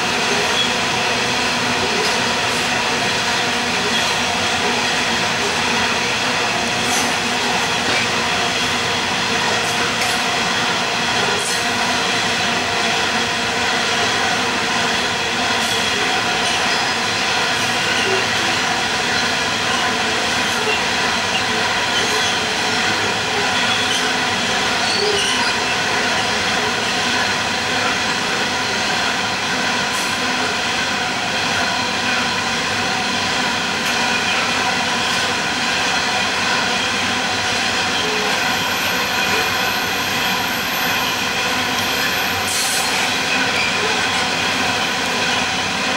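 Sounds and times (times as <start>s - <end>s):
train wheels rolling on rails: 0.0s - 45.9s
wheel squeal against rails: 20.5s - 26.0s, 37.8s - 45.3s.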